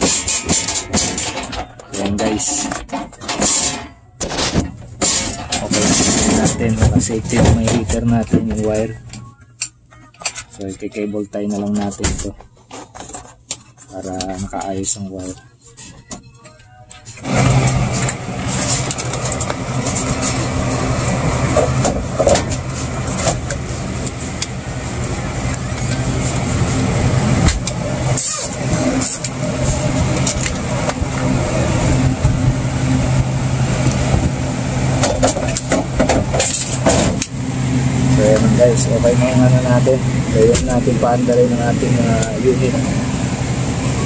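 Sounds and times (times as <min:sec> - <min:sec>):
machine humming: 0:17.1 - 0:44.0.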